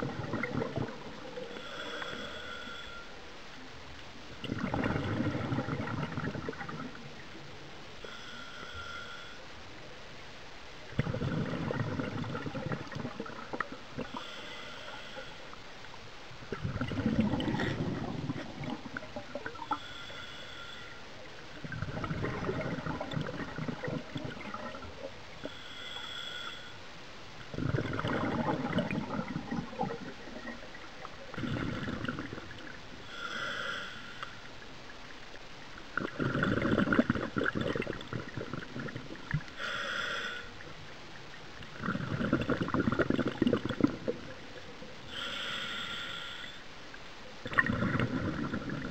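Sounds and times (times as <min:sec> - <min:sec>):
bubbling diver exhalations: 0:00.0 - 0:02.2, 0:04.4 - 0:07.0, 0:11.0 - 0:14.3, 0:16.5 - 0:19.8, 0:21.6 - 0:24.9, 0:27.5 - 0:33.8, 0:35.9 - 0:40.2, 0:41.7 - 0:44.4, 0:47.4 - 0:48.9
regulator hissing inhalations: 0:01.5 - 0:03.2, 0:08.0 - 0:09.4, 0:14.1 - 0:15.5, 0:19.7 - 0:21.0, 0:25.4 - 0:26.8, 0:33.0 - 0:34.5, 0:39.5 - 0:40.6, 0:45.1 - 0:46.7.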